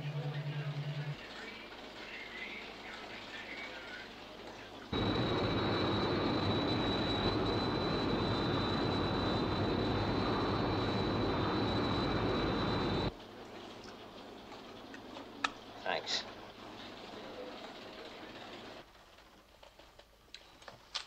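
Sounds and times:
jet engine rush with high whine: 4.9 - 13.1.

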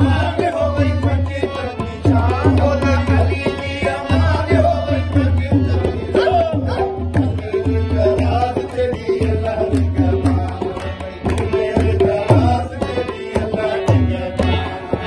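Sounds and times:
man singing: 0.0 - 15.0
tabla beat: 0.0 - 15.0
hand claps: 9.7 - 12.2.

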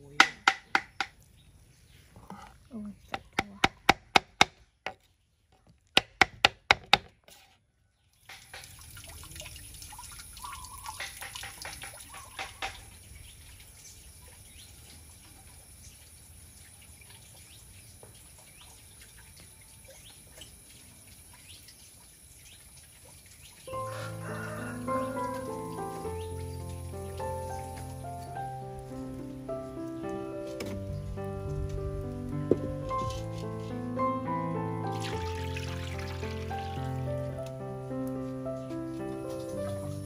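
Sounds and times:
knife chopping on wooden board: 6.0 - 7.2
splashing: 8.1 - 29.9, 34.8 - 37.5
birds chirping: 10.3 - 11.3, 12.0 - 15.0, 24.8 - 31.9.

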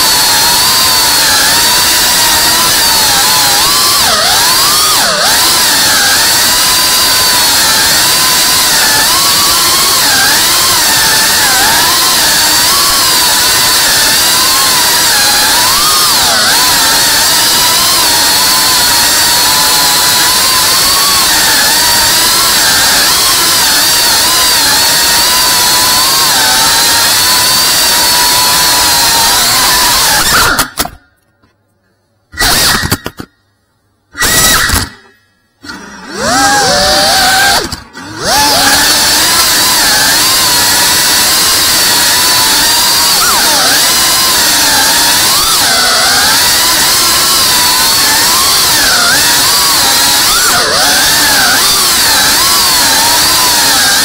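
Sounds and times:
drone motors whining: 0.0 - 31.0, 32.3 - 33.3, 34.1 - 54.0.

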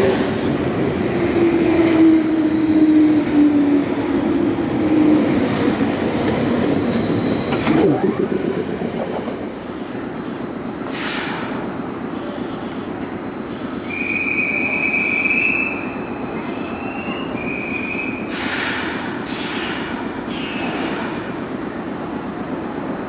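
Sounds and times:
train low hum: 0.0 - 23.0
short air hisses: 9.8 - 12.9, 18.3 - 21.3.

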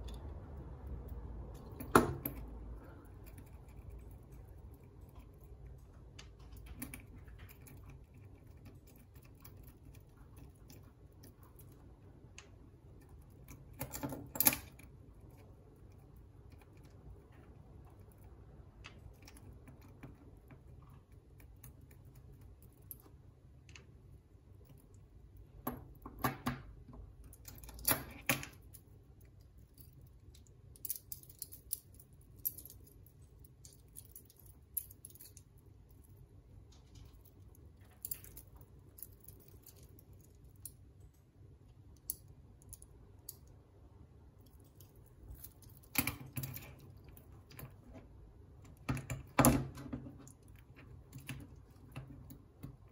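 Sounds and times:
metal bracelet links clinking: 29.6 - 36.2, 37.0 - 40.8, 44.4 - 47.8.

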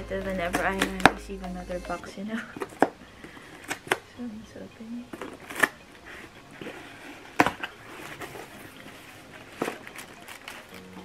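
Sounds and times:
cardboard rustling: 5.2 - 11.0.

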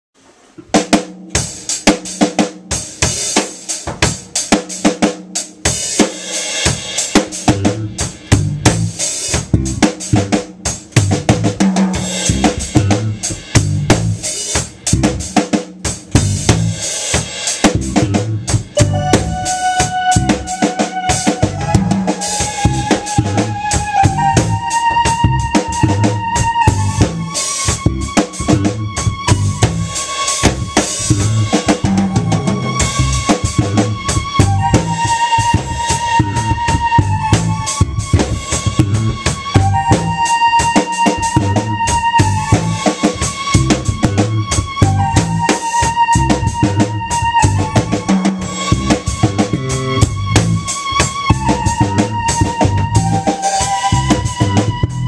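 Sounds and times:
drum kit playing: 0.2 - 55.0
bass guitar: 6.6 - 55.0
long held keyboard notes: 18.0 - 55.0.

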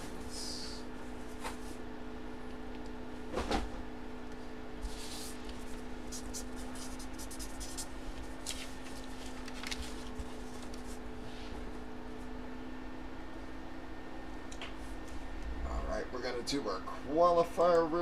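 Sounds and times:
steady low hum: 0.0 - 18.0
marker writing on paper: 4.8 - 8.0.

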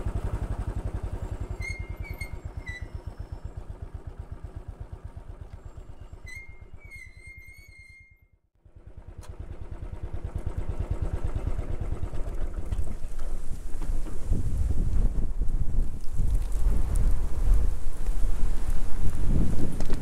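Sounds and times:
motorcycle engine running: 0.0 - 7.2, 8.6 - 20.0.

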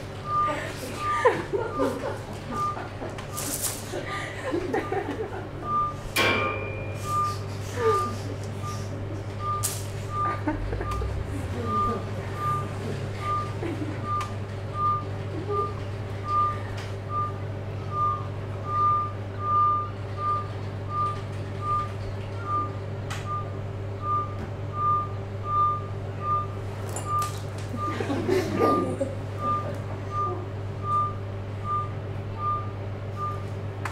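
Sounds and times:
low hum: 8.2 - 33.5
high electronic beeps: 9.4 - 21.9.

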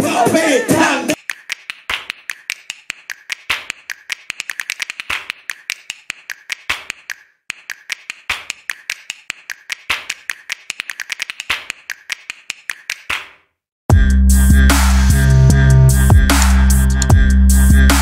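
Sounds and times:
rapid sharp clicks and taps: 1.1 - 13.4.

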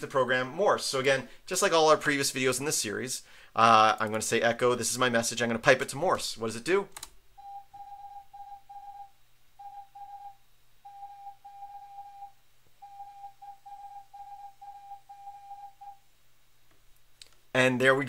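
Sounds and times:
morse code beeps: 7.4 - 16.0.

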